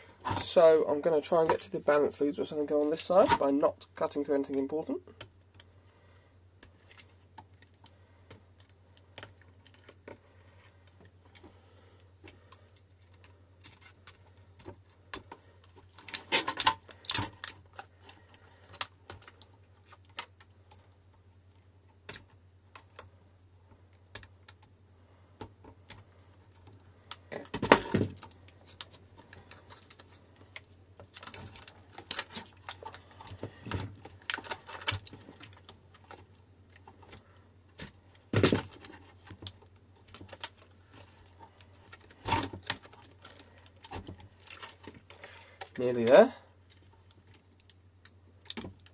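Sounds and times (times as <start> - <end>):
plastic wrap crackling: 25.9 - 48.9.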